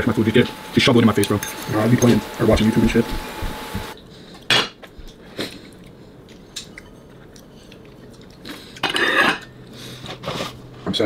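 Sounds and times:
person chewing: 4.3 - 10.6.

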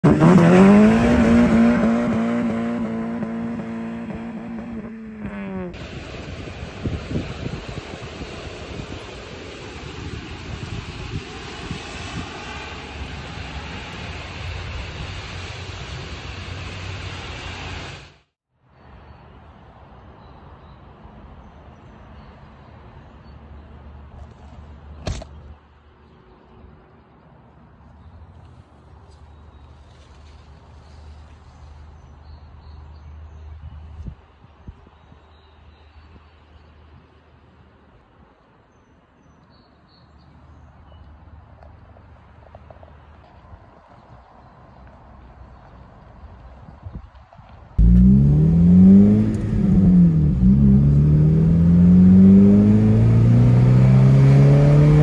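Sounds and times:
car engine revving: 0.0 - 5.9, 47.8 - 55.0
faint wind noise: 5.7 - 17.9, 42.8 - 55.0
car engine idling: 47.8 - 53.5.

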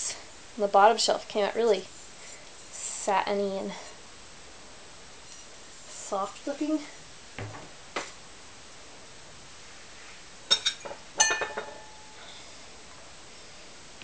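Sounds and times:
soft knocks: 7.4 - 8.1
ceramic bowls clinking: 10.5 - 12.2.

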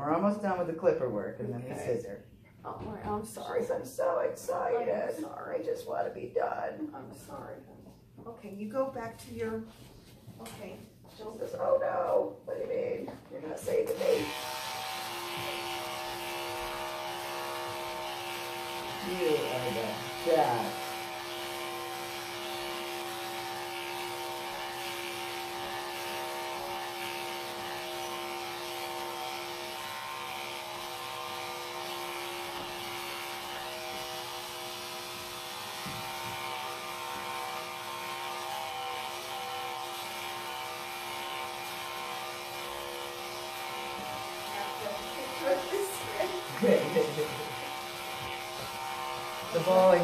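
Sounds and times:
electric clippers buzzing: 13.5 - 50.0.

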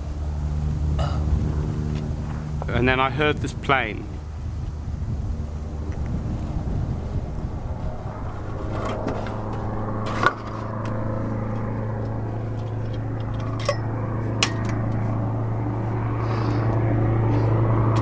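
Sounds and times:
plane engine droning: 0.0 - 18.0.

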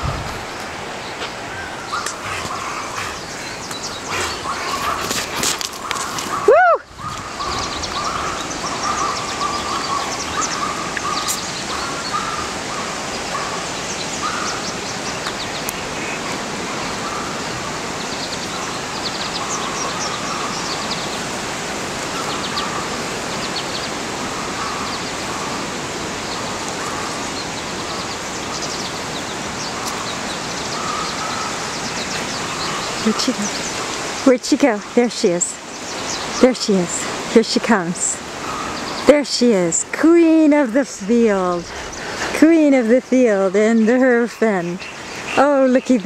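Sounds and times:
steady rushing noise: 0.0 - 34.3
birds calling: 0.0 - 46.0.

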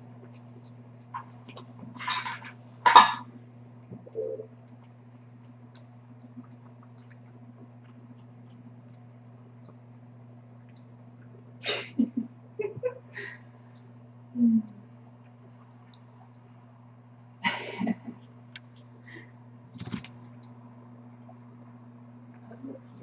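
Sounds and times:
cat eating from metal bowl: 0.0 - 2.9, 3.7 - 10.8
low electrical hum: 0.0 - 23.0.

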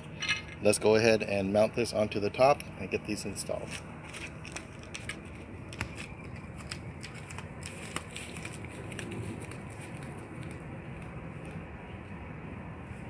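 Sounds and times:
bubble wrap crinkling: 4.0 - 10.6.

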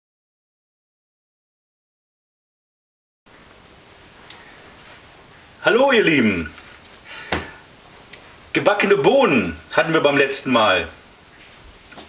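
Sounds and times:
faint steady hiss: 3.3 - 12.0.

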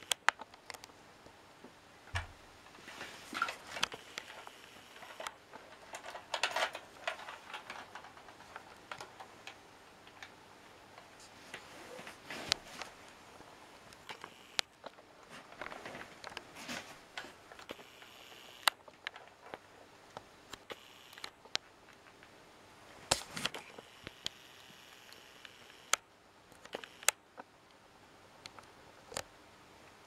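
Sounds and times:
plastic handling rustle: 2.7 - 10.3, 14.8 - 17.7.

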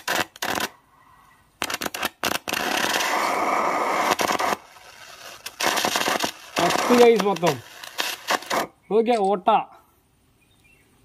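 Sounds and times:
gas flame crackling and popping: 0.0 - 0.8, 1.6 - 9.2
steady flame hiss: 0.0 - 10.4.

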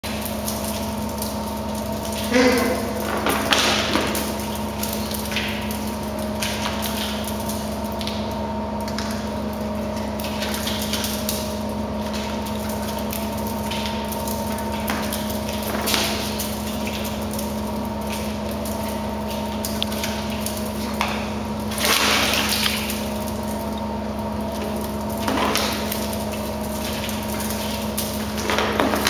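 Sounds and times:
machinery hum: 0.0 - 29.0.

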